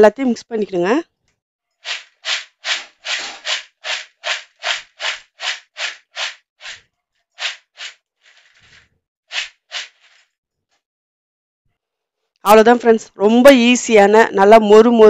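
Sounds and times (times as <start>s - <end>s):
snack mix rattling in plastic bowl: 1.8s - 6.3s, 7.4s - 10.2s
soft rustle: 7.4s - 10.3s.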